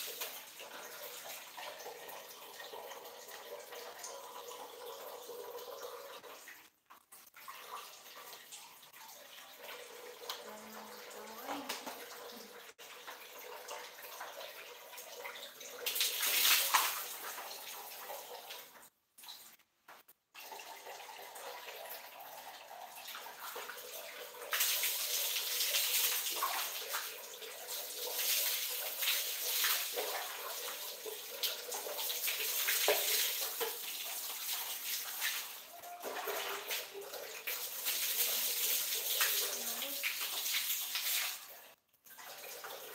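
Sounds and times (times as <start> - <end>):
tap water running into bucket: 0.0 - 6.7, 7.4 - 19.5, 20.4 - 42.9
water splashing poured over head: 15.8 - 17.4.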